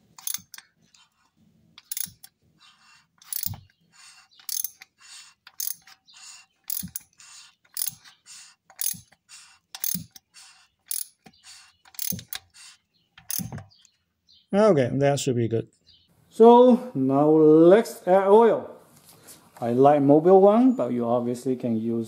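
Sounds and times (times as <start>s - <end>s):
ratcheting wrench clicking: 0.0s - 0.8s, 1.8s - 2.4s, 3.2s - 12.6s, 13.2s - 13.9s.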